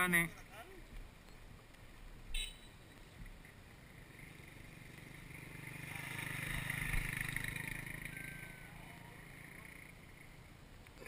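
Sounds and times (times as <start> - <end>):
motorcycle engine running: 3.0 - 10.6.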